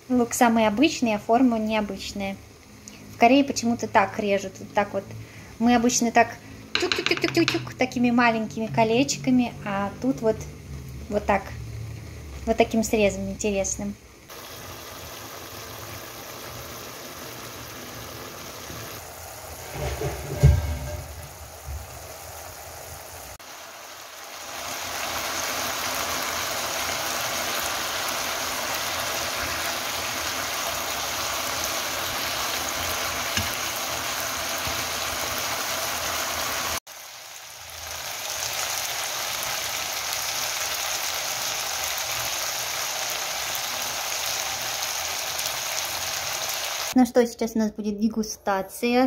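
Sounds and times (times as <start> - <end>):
food sizzling in a pan: 0.0 - 47.0
thump: 19.8 - 21.9.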